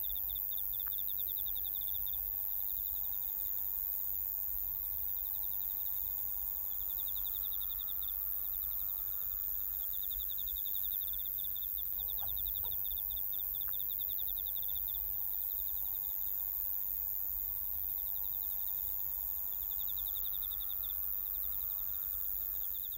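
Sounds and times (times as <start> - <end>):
crickets chirping: 0.0 - 22.9
high-pitched whine: 6.5 - 11.2.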